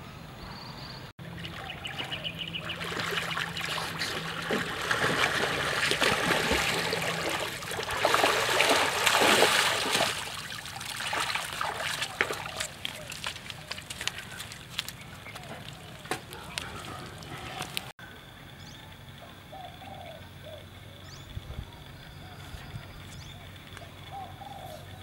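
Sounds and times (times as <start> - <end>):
water splashing and sloshing: 1.2 - 17.9.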